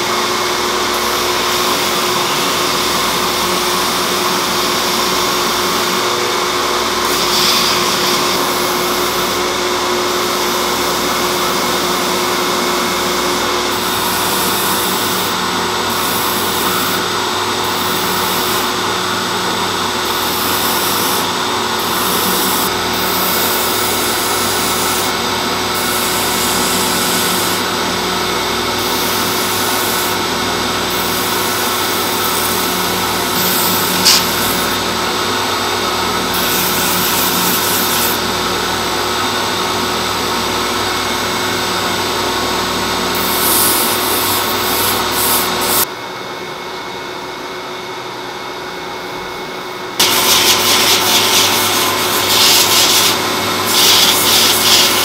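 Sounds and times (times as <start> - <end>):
belt grinder motor hum: 0.0 - 38.8, 50.0 - 55.0
gritty sanding hiss: 50.0 - 55.0.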